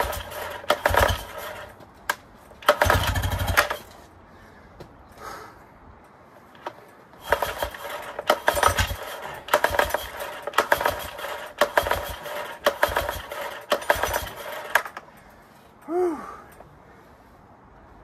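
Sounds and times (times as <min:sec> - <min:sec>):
outboard engine pull-start rattle: 0:00.0 - 0:01.8, 0:02.6 - 0:03.9, 0:06.6 - 0:15.0.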